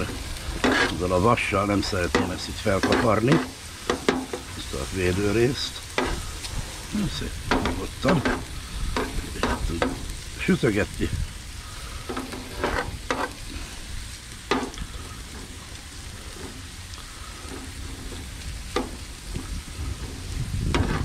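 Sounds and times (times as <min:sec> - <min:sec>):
ham sizzling on a grill: 0:00.0 - 0:21.0
plastic spatula scraping: 0:00.5 - 0:01.0, 0:07.6 - 0:10.1, 0:12.1 - 0:13.5, 0:17.4 - 0:21.0.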